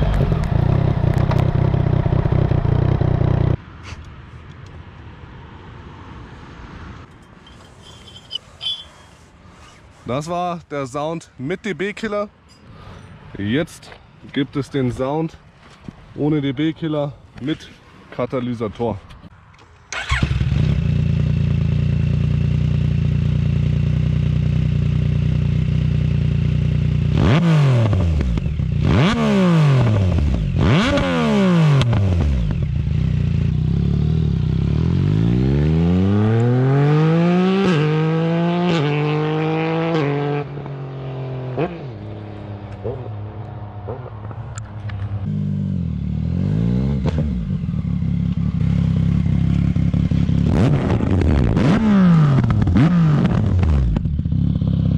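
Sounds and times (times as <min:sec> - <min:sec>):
motorcycle engine idling and revving: 0:00.0 - 0:03.6, 0:19.9 - 0:54.9
motorcycle accelerating with upshifts: 0:19.9 - 0:54.9.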